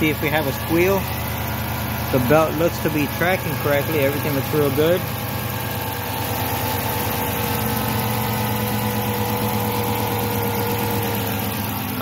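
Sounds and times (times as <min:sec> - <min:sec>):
car engine idling: 0:00.0 - 0:12.0.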